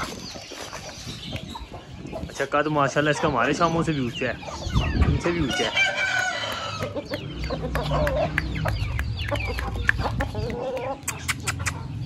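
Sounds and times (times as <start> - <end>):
chickens clucking: 0.0 - 12.0
sharp clicks: 6.4 - 11.8.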